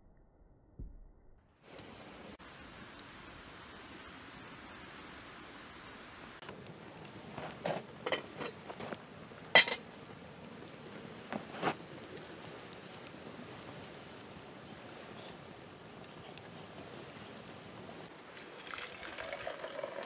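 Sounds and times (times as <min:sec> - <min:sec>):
wood fire crackling: 0:01.6 - 0:20.0
metal pot clinking on grill: 0:08.0 - 0:08.8, 0:09.5 - 0:09.8.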